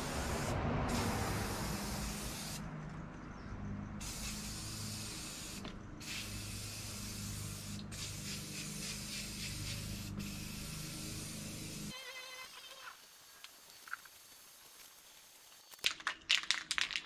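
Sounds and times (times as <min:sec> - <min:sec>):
aerosol spray can hissing: 0:00.0 - 0:02.6, 0:04.0 - 0:12.0.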